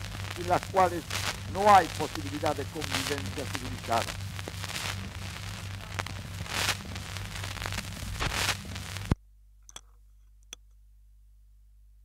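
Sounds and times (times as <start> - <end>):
heavy hiss: 0.0 - 9.2
low steady hum: 0.0 - 12.0.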